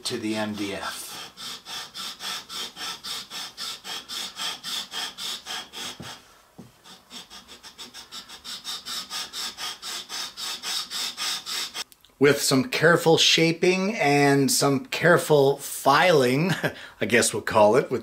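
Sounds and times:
wood sanding strokes on sandpaper: 0:00.0 - 0:11.8.

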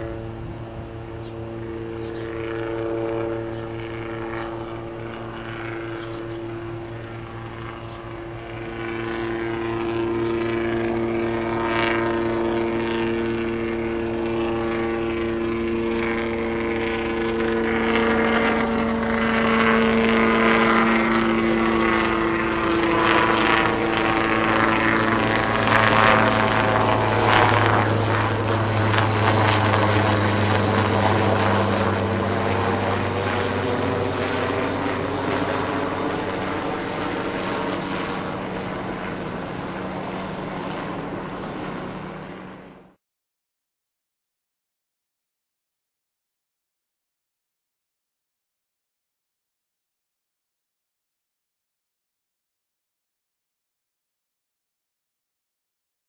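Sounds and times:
helicopter engine whine: 0:00.0 - 0:43.0
helicopter rotor chop: 0:00.0 - 0:43.0.

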